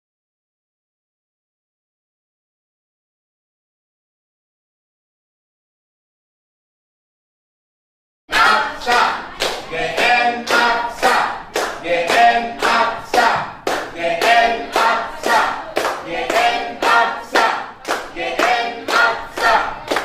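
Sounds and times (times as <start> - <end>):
group singing: 8.3 - 20.0
hands clapping in rhythm: 8.3 - 20.0.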